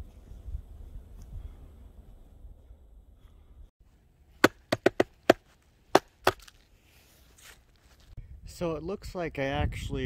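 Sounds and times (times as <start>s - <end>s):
wind buffeting microphone: 0.0s - 2.8s, 8.2s - 10.0s.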